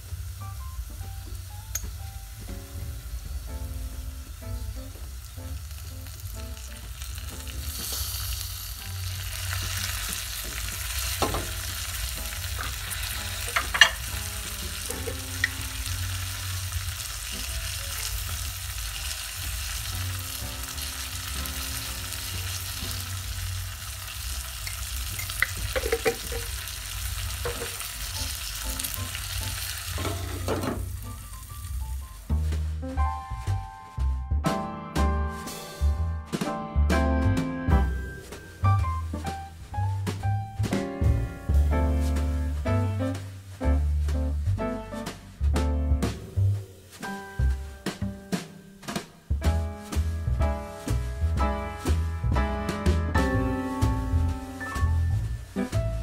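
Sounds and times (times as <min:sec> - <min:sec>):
meat and onions sizzling in pot: 0:00.0 - 0:33.5, 0:53.1 - 0:56.0
utensil knocking against pot: 0:25.4 - 0:26.5, 0:27.4 - 0:27.8.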